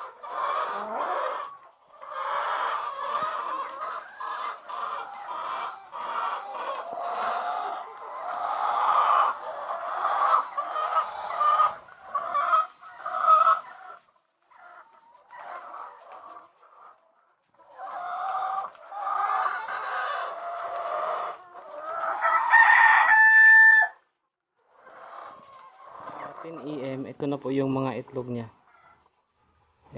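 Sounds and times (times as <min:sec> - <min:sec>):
drawn-out hen call: 0:00.0 - 0:17.0, 0:17.6 - 0:24.1
hens clucking and cackling: 0:00.0 - 0:29.9.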